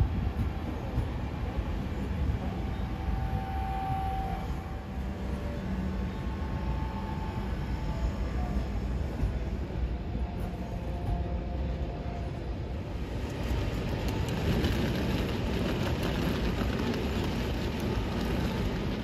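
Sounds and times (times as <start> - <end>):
train wheels rumbling on rails: 0.0 - 19.0
faint high squeals: 2.0 - 9.8.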